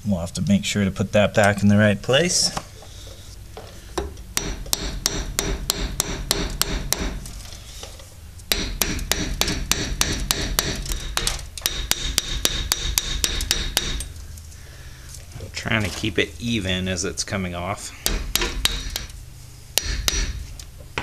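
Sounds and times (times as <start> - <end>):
hammer tapping on metal: 3.6 - 7.9, 8.5 - 14.2, 18.0 - 19.2, 19.8 - 21.0.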